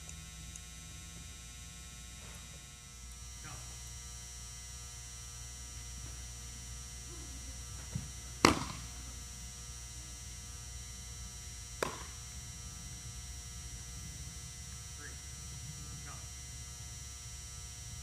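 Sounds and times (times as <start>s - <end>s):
steady electrical hum: 0.0s - 18.0s
baseball smacking into mitt: 7.9s - 9.0s, 11.8s - 12.2s.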